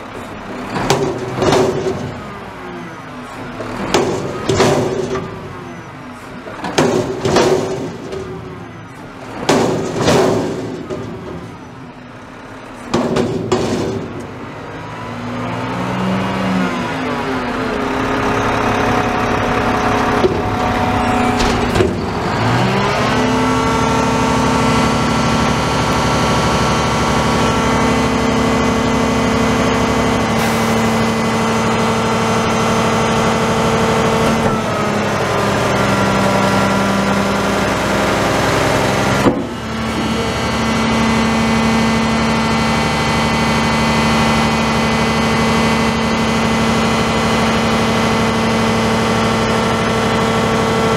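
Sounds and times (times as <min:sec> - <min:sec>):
garbage truck engine revving: 0:00.0 - 0:50.9
metal knocks: 0:06.6 - 0:08.6, 0:09.4 - 0:11.7, 0:12.9 - 0:14.4, 0:20.2 - 0:22.8
hydraulic whine: 0:17.6 - 0:48.2.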